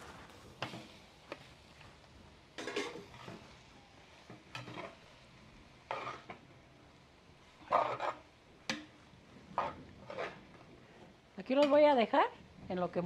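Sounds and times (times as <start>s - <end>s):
faint sizzle: 0.0s - 13.0s
spoon stirring and scraping pot: 2.6s - 3.6s, 4.2s - 5.1s, 5.8s - 6.4s, 7.6s - 10.7s.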